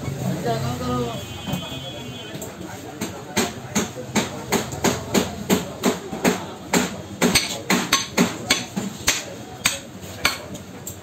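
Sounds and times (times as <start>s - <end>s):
cleaver chopping on wooden block: 3.4s - 10.5s.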